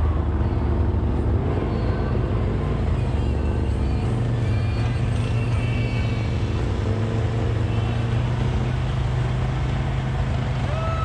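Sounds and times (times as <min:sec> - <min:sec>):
off-road vehicle engine running: 0:00.0 - 0:11.0.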